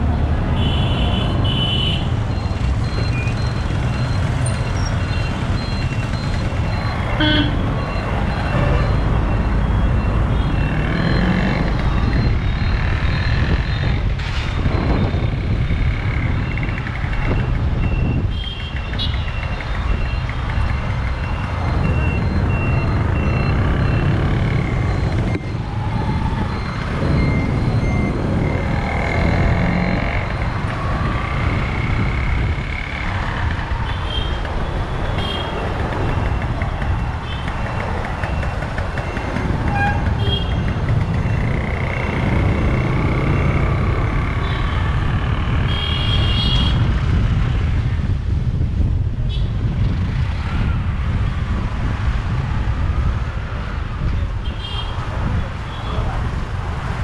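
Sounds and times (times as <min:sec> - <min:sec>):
motorcycle engine and road rumble: 0:00.0 - 0:57.0
vehicle horns tooting: 0:07.1 - 0:07.7, 0:39.7 - 0:40.7, 0:45.6 - 0:46.8.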